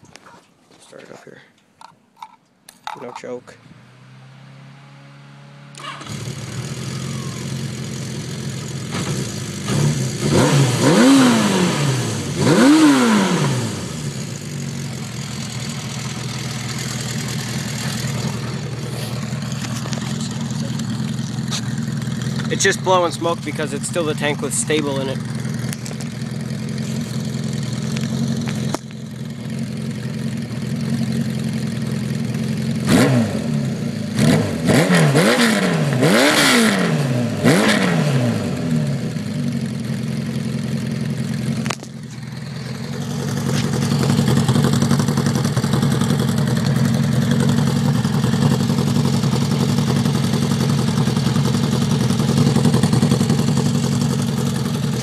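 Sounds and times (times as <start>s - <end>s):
motorcycle engine idling and revving: 1.8s - 55.0s.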